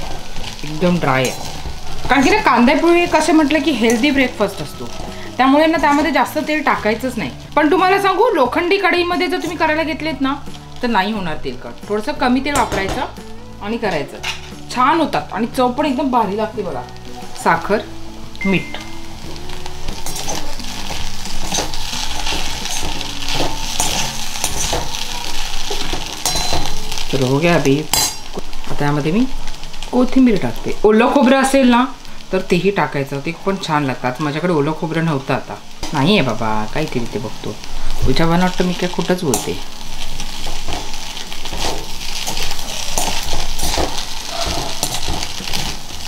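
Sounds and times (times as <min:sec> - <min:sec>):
metal spatula scraping iron pan: 0:00.0 - 0:04.2, 0:19.9 - 0:26.9, 0:39.3 - 0:45.9
food sizzling: 0:00.0 - 0:46.0.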